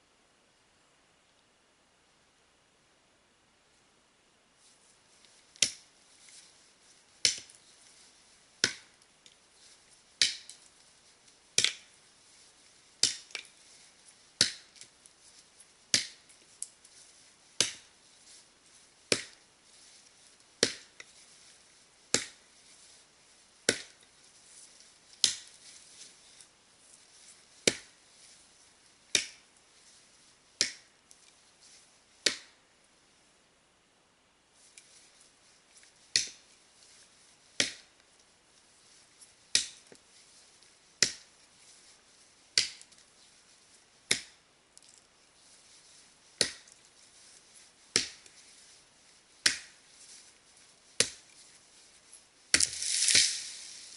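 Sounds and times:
axe chopping tree trunk: 5.6 - 5.8, 7.2 - 7.6, 8.6 - 8.9, 10.2 - 10.6, 11.6 - 11.9, 13.0 - 13.5, 14.4 - 14.7, 15.9 - 16.2, 17.6 - 17.9, 19.1 - 19.4, 20.6 - 20.9, 22.1 - 22.4, 23.7 - 24.0, 25.2 - 25.5, 27.7 - 27.9, 29.2 - 29.4, 37.6 - 37.8, 44.1 - 44.4, 46.4 - 46.7, 48.0 - 48.2, 49.4 - 49.7, 51.0 - 51.2, 52.5 - 53.7.

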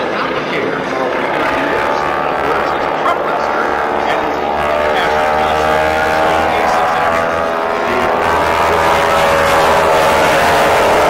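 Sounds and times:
aircraft engines droning: 0.0 - 11.0
propeller noise: 0.0 - 11.0.

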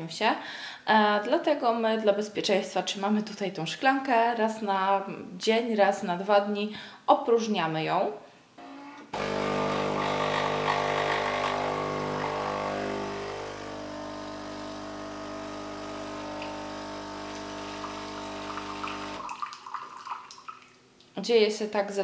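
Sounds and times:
coffee machine pump buzzing: 8.6 - 19.3.

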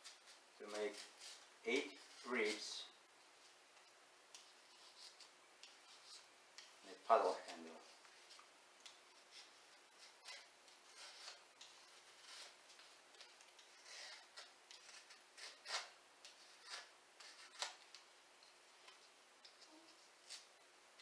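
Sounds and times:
blade scraping wood: 9.2 - 12.6, 13.2 - 17.7.

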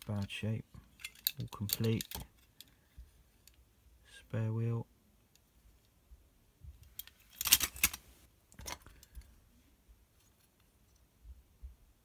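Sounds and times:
metal toy vehicles clinking: 0.0 - 2.8, 6.9 - 8.0.

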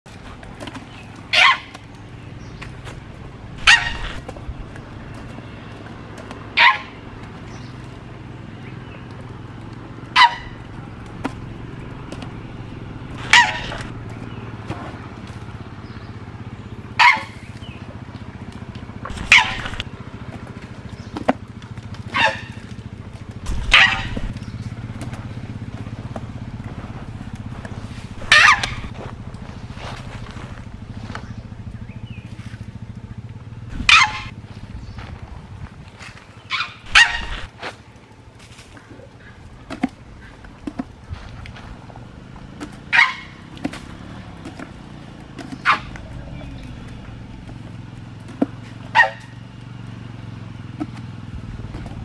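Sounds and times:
steady low hum: 0.1 - 52.0
short sharp animal calls: 3.6 - 4.2, 13.2 - 13.9, 19.1 - 19.8, 23.5 - 24.4, 28.2 - 28.9, 33.7 - 34.3, 36.5 - 37.5.

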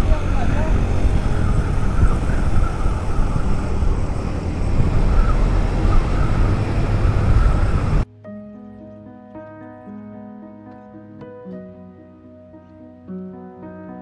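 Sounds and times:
motorcycle engine: 0.0 - 8.0
wind noise on microphone: 0.0 - 8.1
soft background music: 8.0 - 14.0.

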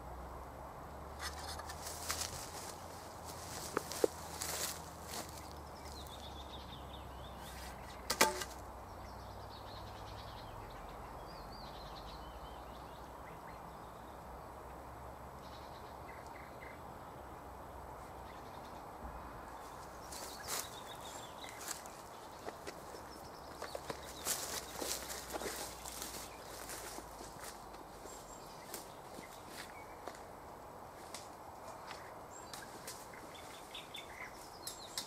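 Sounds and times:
faint high birdsong: 1.1 - 30.4, 31.6 - 35.0
sharp knocks: 8.1 - 8.6.

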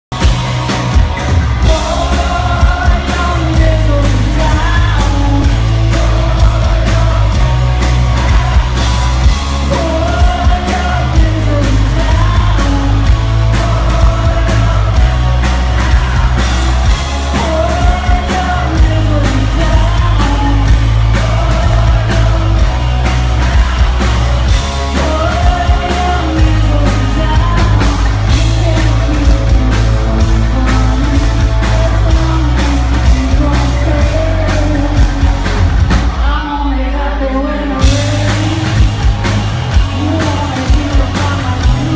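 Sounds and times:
live rock band playing: 0.1 - 41.9
woman singing: 1.6 - 7.4, 17.3 - 21.2, 24.9 - 35.5.

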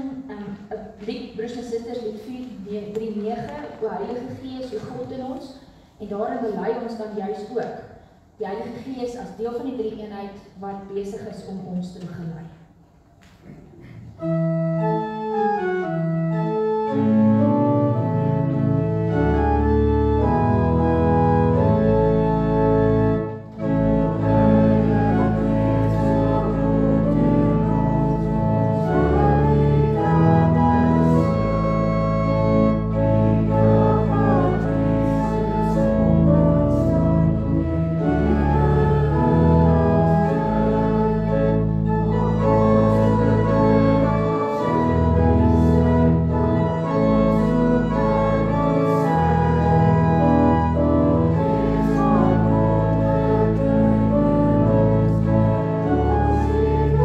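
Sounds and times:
organ playing hymn chords: 14.1 - 57.0.

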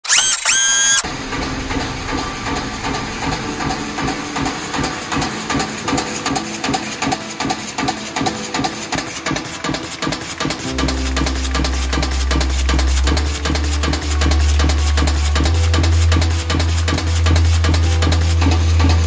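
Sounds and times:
rising electronic sound effect: 0.0 - 1.1.

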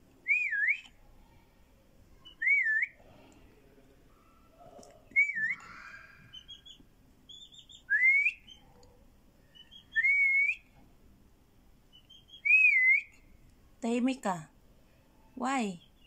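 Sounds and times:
bird singing whistled phrase: 0.3 - 0.9, 2.2 - 3.0, 5.2 - 5.6, 6.3 - 8.6, 9.5 - 10.6, 12.0 - 13.1.

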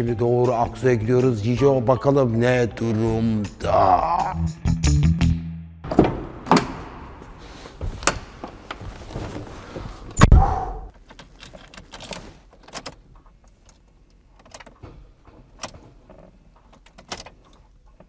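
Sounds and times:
rustling and knocks: 5.9 - 10.2
keys jingling: 11.0 - 14.8.

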